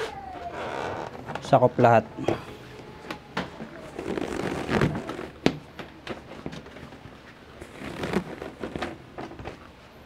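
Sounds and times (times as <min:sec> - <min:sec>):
fabric rustling: 0:03.6 - 0:09.7.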